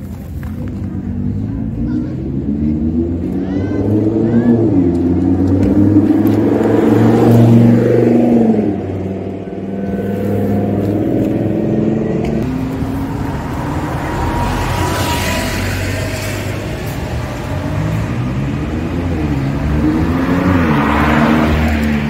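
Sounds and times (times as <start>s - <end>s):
car approaching: 0.0s - 22.0s
traffic engines: 0.0s - 22.0s
sports car accelerating past: 2.2s - 22.0s.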